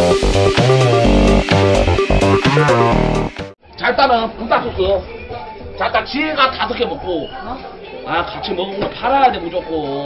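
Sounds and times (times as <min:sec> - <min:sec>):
electronic synth music: 0:00.0 - 0:03.6.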